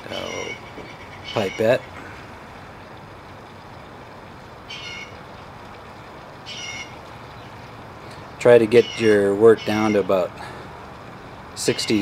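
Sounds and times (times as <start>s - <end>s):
steady background hiss: 0.0s - 12.0s
high-pitched animal calls: 0.1s - 1.9s, 4.7s - 5.2s, 6.4s - 7.0s.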